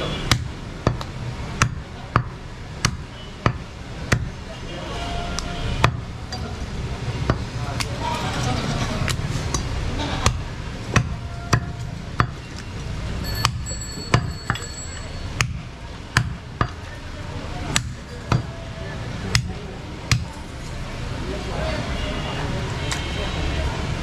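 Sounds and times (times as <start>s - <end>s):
knife chopping on wooden block: 0.3s - 4.4s.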